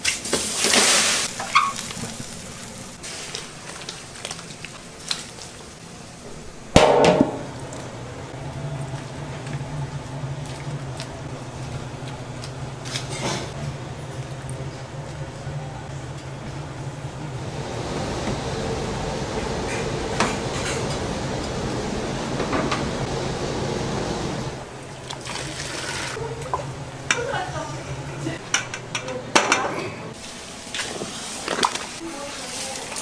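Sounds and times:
steady low hum: 5.8 - 25.0.

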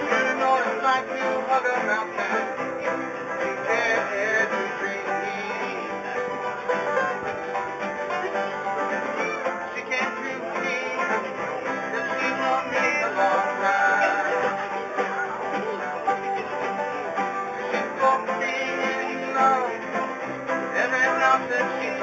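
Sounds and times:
acoustic string band playing: 0.0 - 22.0
plucked strings: 0.0 - 22.0.

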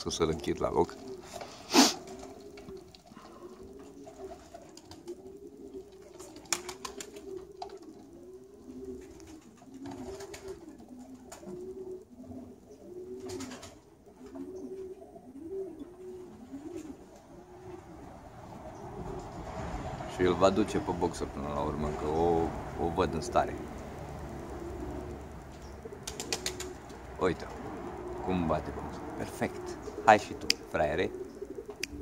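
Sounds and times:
pigeons cooing: 0.0 - 32.0
sharp clicks: 30.3 - 30.7.

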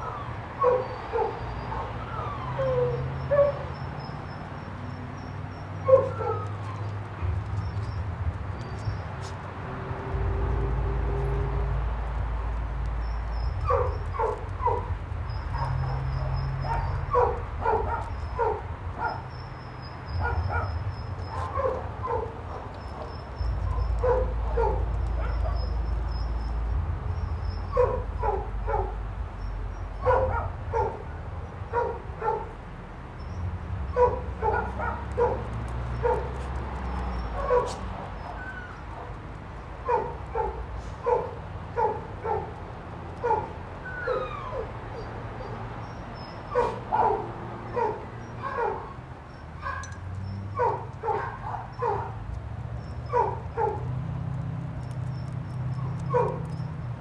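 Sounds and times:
dog barking: 0.6 - 3.8, 5.8 - 6.9, 13.6 - 14.9, 15.5 - 19.4, 20.1 - 25.8, 27.7 - 29.0, 30.0 - 32.5, 33.9 - 36.5, 37.3 - 39.2, 39.8 - 42.6, 43.2 - 45.6, 46.5 - 49.0, 49.6 - 52.2, 53.0 - 53.9, 55.8 - 56.6.

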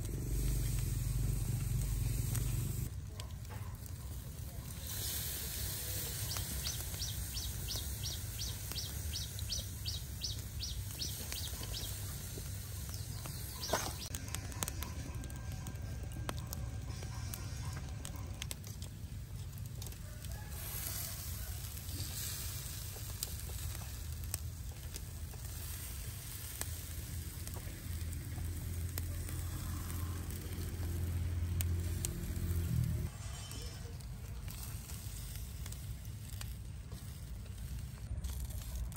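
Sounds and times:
low rumble: 0.0 - 2.9
meat sizzling and crackling: 0.0 - 38.9
bird chirping: 6.0 - 15.6.

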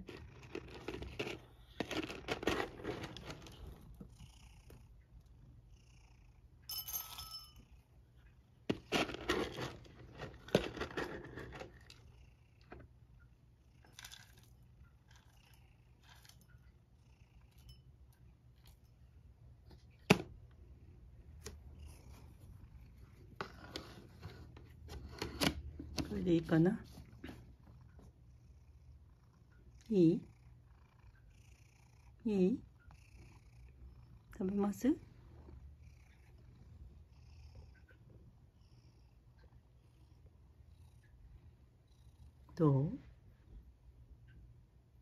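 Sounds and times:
cat purring: 0.0 - 6.6, 20.6 - 25.2, 26.2 - 45.0
rustles and clinks: 6.7 - 7.7.

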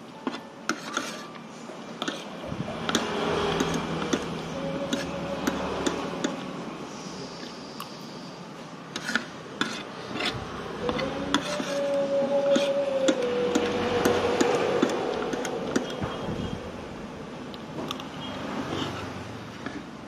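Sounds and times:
steady drone: 2.4 - 8.6, 10.1 - 17.6.

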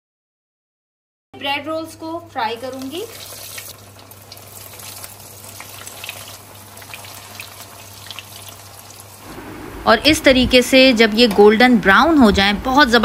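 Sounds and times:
deep-frying in hot oil sizzling: 2.4 - 9.6.

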